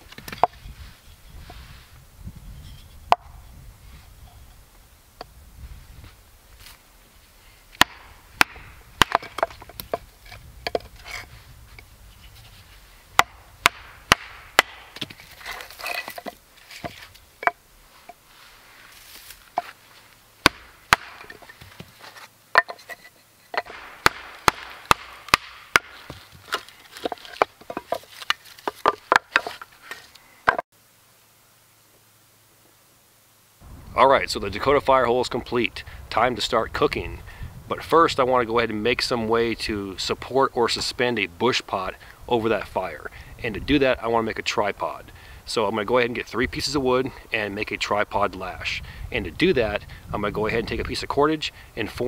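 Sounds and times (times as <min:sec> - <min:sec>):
hatchet splitting firewood: 0:00.0 - 0:00.7, 0:03.1 - 0:03.4, 0:07.7 - 0:18.2, 0:20.4 - 0:30.6.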